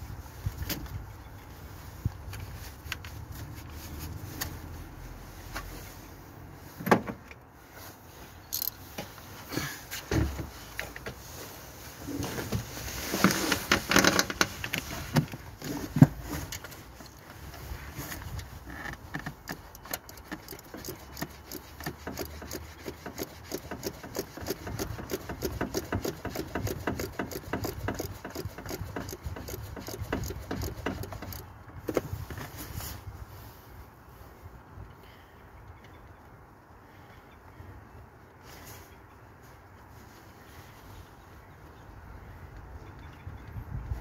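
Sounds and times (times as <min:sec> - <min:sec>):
ratchet wrench clicking: 0:08.5 - 0:08.8, 0:19.7 - 0:31.4.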